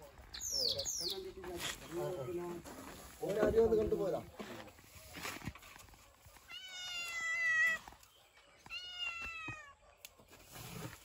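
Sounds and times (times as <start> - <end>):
cat meowing: 6.5 - 7.8.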